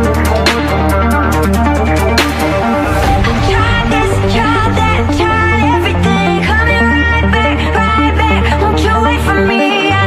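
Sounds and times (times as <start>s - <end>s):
synth melody: 0.0s - 9.1s
bass line: 0.0s - 10.0s.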